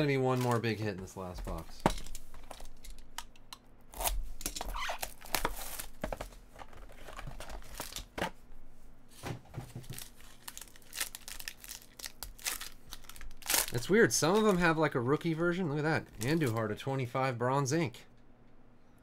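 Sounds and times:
foil crinkling and tearing: 9.8 - 14.8.

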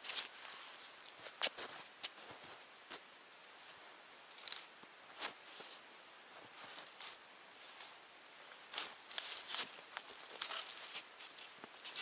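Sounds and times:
snow crunching underfoot: 0.0 - 3.0, 4.6 - 12.0
branches rustling: 0.0 - 12.0.

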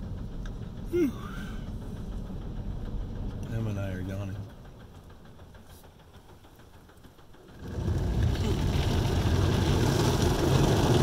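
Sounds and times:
car wash equipment rushing: 7.4 - 11.0.

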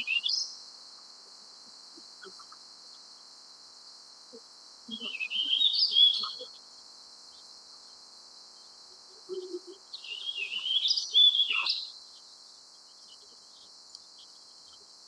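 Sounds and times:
bird singing warbled phrases: 0.0 - 0.6, 4.9 - 6.6, 9.2 - 12.2.

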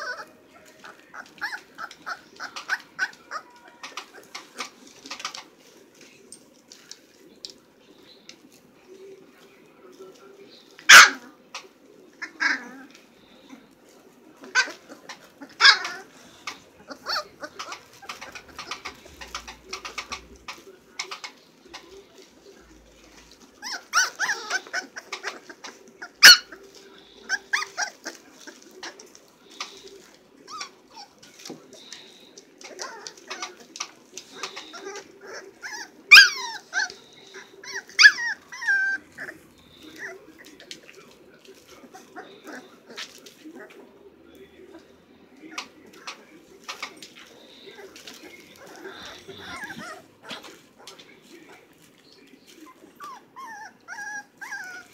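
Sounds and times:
puppies yipping and squealing: 0.0 - 5.7, 10.6 - 13.8, 14.4 - 43.8, 44.7 - 54.9.

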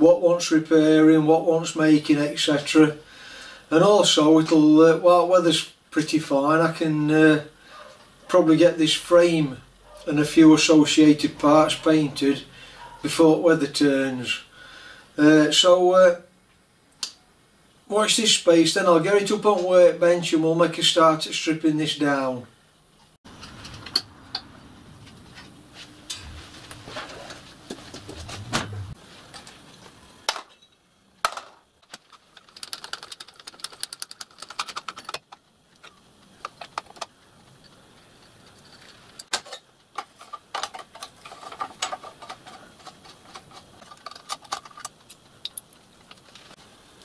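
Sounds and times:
low handling rumble: 24.1 - 29.0
metal parts and tools clinking: 31.4 - 46.6.

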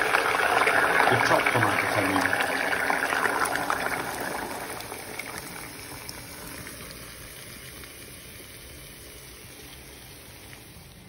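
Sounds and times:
oil sizzling in pan: 0.0 - 11.0.

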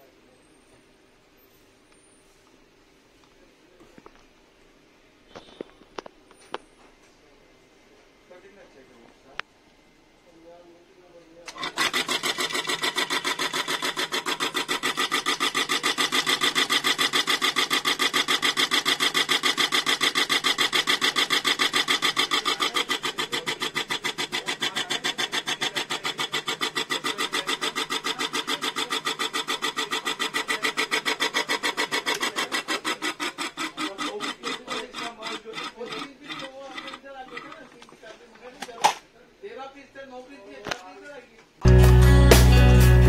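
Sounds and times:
ceiling fan motor spinning: 11.4 - 37.8
rhythmic scraping rub: 11.6 - 37.8.

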